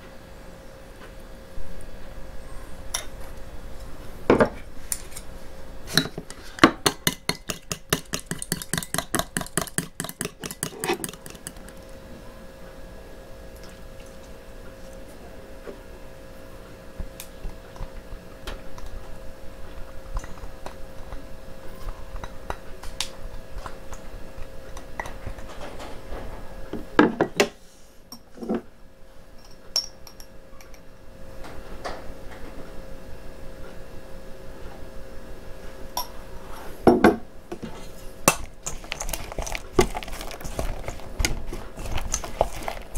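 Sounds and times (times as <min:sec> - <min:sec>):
faint steady hum: 0:00.0 - 0:42.9
utensils clinking against cookware: 0:06.9 - 0:11.7.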